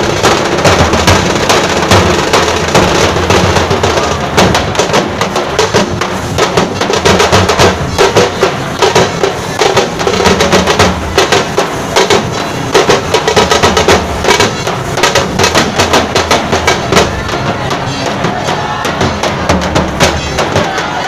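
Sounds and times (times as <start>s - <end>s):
barrel drums beaten with sticks: 0.0s - 21.0s
rapid stick strokes on small drums: 0.0s - 21.0s.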